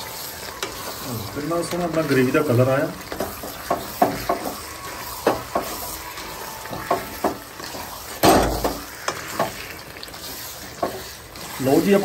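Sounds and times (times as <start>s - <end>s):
gravy sizzling: 0.0s - 12.0s
metal spoon scraping pan: 6.7s - 12.0s.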